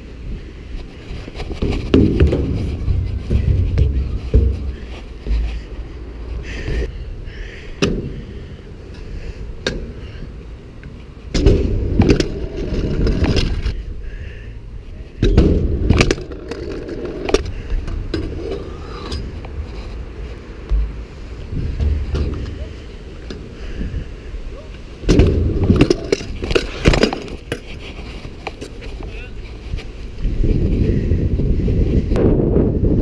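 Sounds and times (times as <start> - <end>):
scooter wheels rolling: 0.6 - 6.9, 8.1 - 14.0, 14.8 - 30.9
scooter deck clicks and knocks: 15.2 - 19.3.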